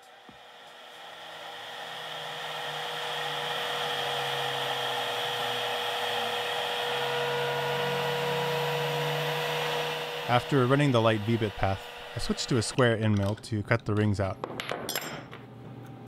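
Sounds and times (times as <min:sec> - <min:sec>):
router spindle high whine: 0:00.0 - 0:13.3.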